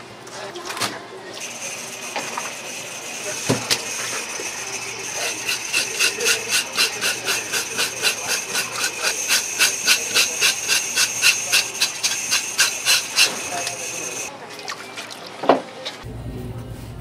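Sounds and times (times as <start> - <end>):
hand tool strokes: 5.0 - 14.3.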